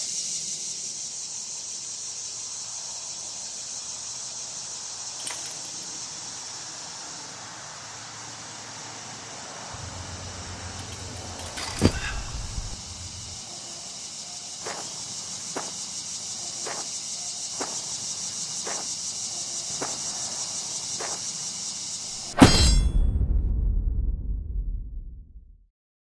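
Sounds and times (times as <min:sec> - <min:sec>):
insects chirring: 0:00.0 - 0:23.0
footsteps on gravel: 0:14.6 - 0:15.9, 0:16.5 - 0:19.0, 0:19.7 - 0:20.1, 0:20.9 - 0:21.3.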